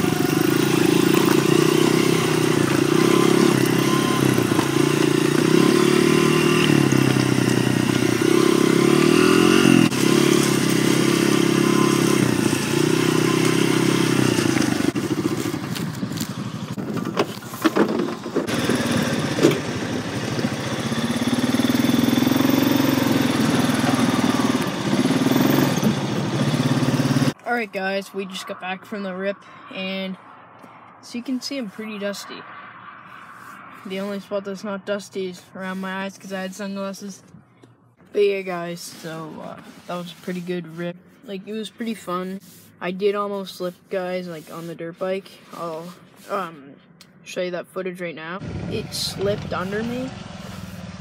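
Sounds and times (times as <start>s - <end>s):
dirt bike engine revving: 0.0s - 30.2s, 48.4s - 51.0s.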